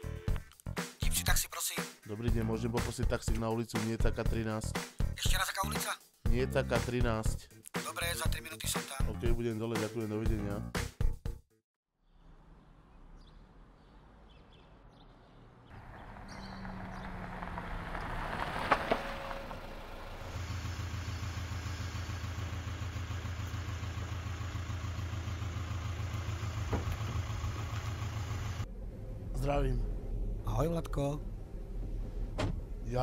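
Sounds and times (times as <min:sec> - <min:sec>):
diesel car idling: 0:15.8 - 0:28.8.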